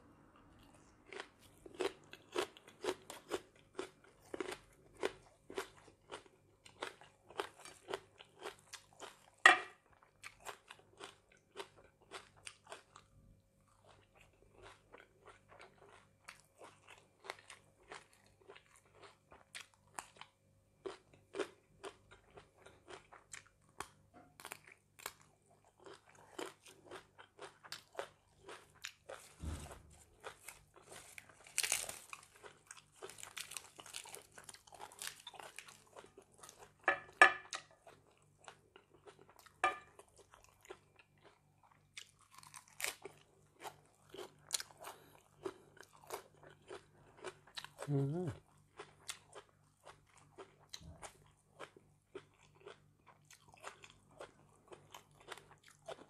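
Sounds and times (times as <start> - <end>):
chewing food: 0.2 - 56.0
low thump: 29.4 - 30.0.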